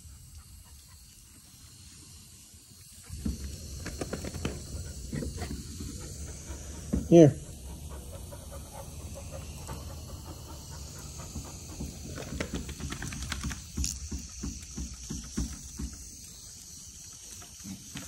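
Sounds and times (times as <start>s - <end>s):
dog panting: 0.0s - 2.2s, 2.8s - 13.8s.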